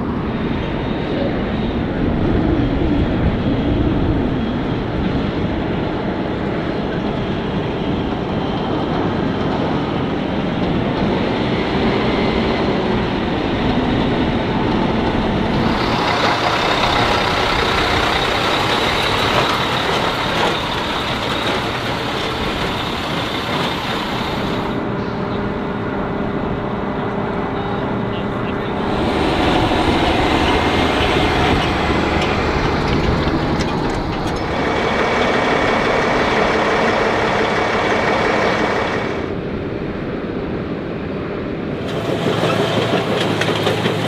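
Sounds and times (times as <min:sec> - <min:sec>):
military trucks driving past: 0:04.8 - 0:44.0
bright hissy engine noise: 0:15.5 - 0:25.8, 0:27.3 - 0:39.6, 0:41.7 - 0:44.0.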